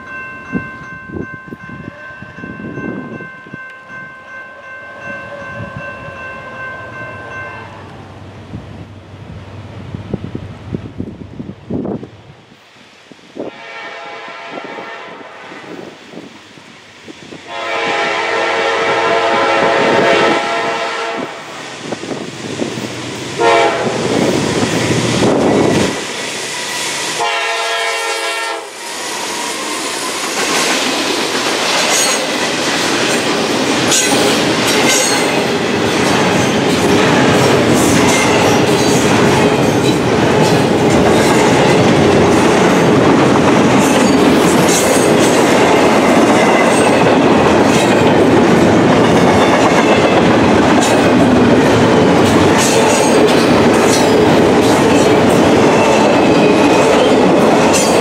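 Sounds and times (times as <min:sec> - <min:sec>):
locomotive horn blowing: 0:13.4 - 0:15.8, 0:17.5 - 0:21.6, 0:23.4 - 0:24.1, 0:27.2 - 0:28.8.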